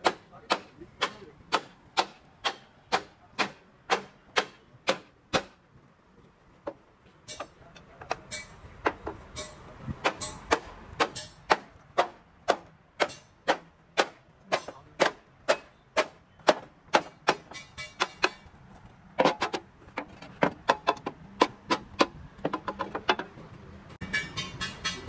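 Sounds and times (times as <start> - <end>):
hammer striking steel: 0.0 - 5.6, 7.2 - 18.5, 24.0 - 25.0.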